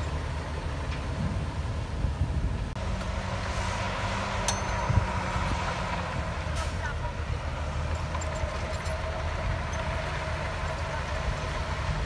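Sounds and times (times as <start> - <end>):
diesel machinery running: 0.0 - 12.0
sharp metallic clank: 4.4 - 5.4.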